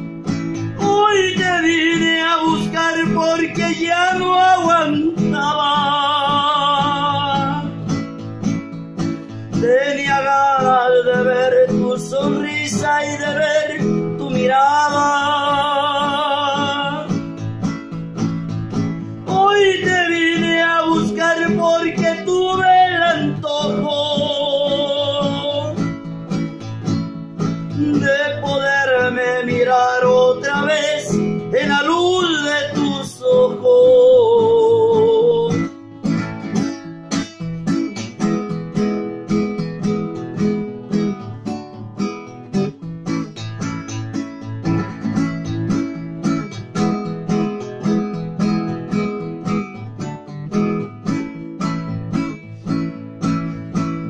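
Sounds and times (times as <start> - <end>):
man singing: 0.0 - 8.2, 9.3 - 17.6, 19.0 - 26.7, 27.4 - 35.8
classical guitar: 0.0 - 54.0.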